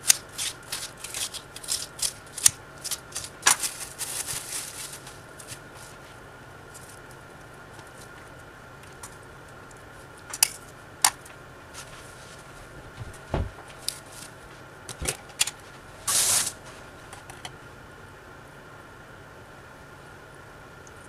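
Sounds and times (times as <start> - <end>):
scraping rustle: 0.0 - 8.3, 11.7 - 14.7, 15.6 - 17.0
faint high hum: 0.0 - 21.0.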